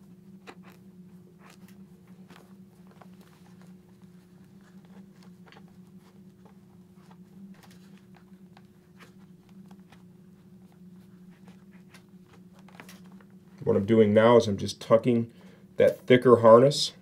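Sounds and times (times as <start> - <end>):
steady low hum: 0.0 - 17.0
hands rustling padding: 0.3 - 13.7.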